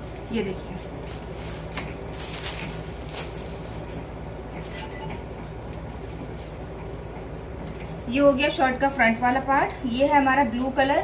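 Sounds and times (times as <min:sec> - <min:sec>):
steady low hum: 0:00.0 - 0:11.0
fabric rustling: 0:00.9 - 0:04.1.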